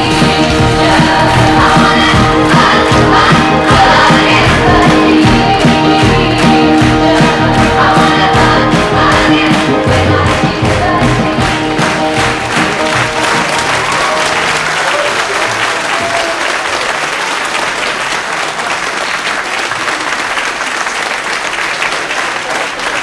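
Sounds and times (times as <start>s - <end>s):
band playing: 0.0s - 16.5s
audience applauding: 0.0s - 23.0s.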